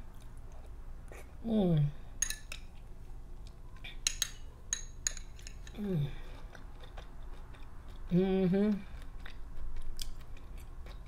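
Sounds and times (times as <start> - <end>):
person humming: 1.2 - 2.0, 5.7 - 6.4, 8.1 - 9.0
spoon clinking against glass bowl: 2.2 - 2.7, 4.0 - 5.8.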